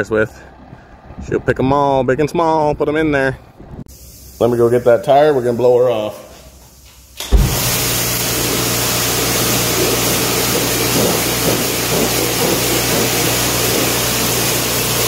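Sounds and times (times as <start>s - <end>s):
pressure washer water jet hissing: 3.9s - 15.0s.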